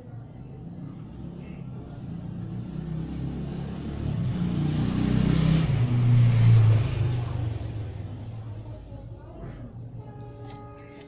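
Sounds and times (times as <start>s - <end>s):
vehicle engine passing by: 0.5s - 8.7s.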